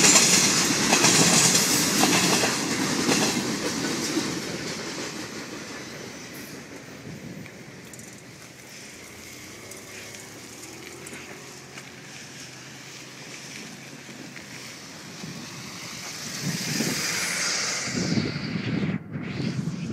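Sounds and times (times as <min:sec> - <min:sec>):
steady hiss: 0:04.5 - 0:17.9
wind buffeting microphone: 0:06.6 - 0:08.5, 0:14.2 - 0:19.9
gusty low rumbles: 0:14.9 - 0:19.9.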